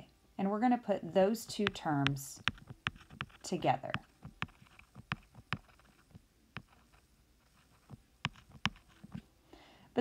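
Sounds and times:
stylus tapping on glass screen: 1.5 - 9.2.

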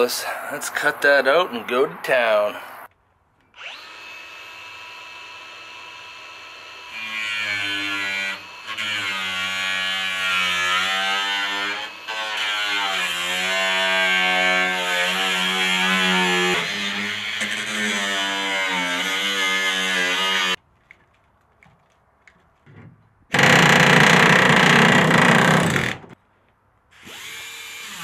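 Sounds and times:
angle grinder cutting sheet metal: 3.6 - 20.6.

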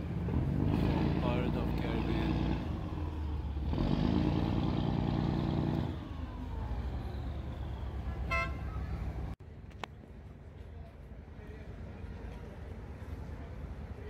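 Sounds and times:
boat engine rumbling: 0.0 - 9.4
high toot: 8.0 - 9.1.

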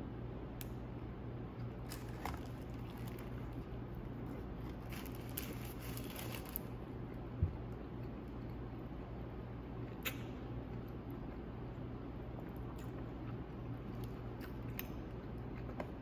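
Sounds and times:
low room hum: 0.0 - 16.0
burger being chewed: 1.5 - 8.6
paper wrapper crinkling: 1.9 - 3.7, 4.6 - 6.7.

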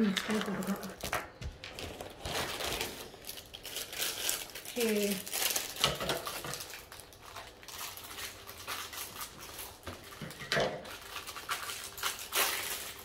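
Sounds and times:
plastic packaging rustling: 0.0 - 13.0
plastic items clicking: 3.3 - 13.0.

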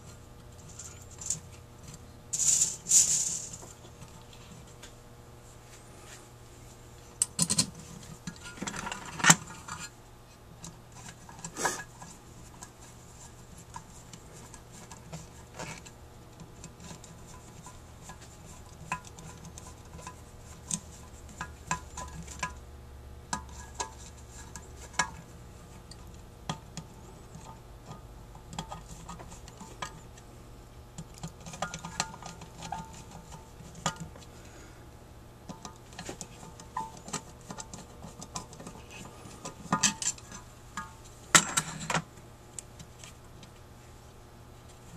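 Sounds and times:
metal parts clattering: 2.4 - 3.6.

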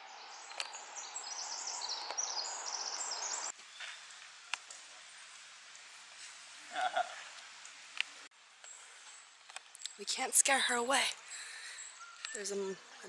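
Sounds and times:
small birds chirping and trilling: 0.0 - 4.2, 8.6 - 13.0
steady hiss: 0.0 - 12.3.

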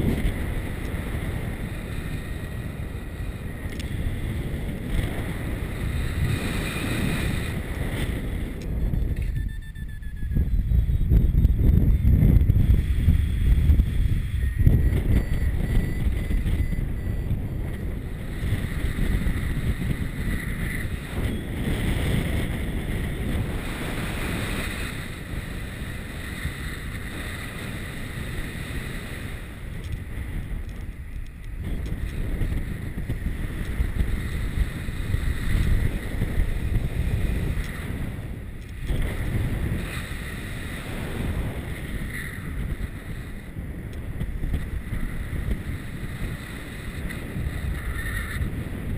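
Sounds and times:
wind buffeting microphone: 0.0 - 48.9.

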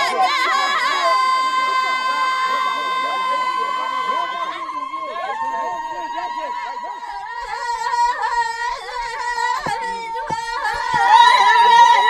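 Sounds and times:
women singing together: 0.0 - 2.4, 4.2 - 12.0
sharp drum beats: 7.9 - 11.6.

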